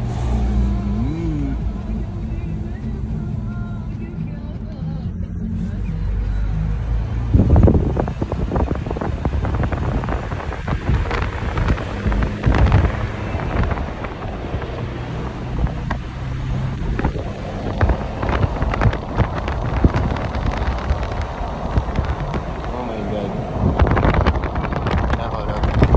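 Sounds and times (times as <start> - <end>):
car road noise: 0.0 - 25.9
wind buffeting microphone: 7.2 - 25.9.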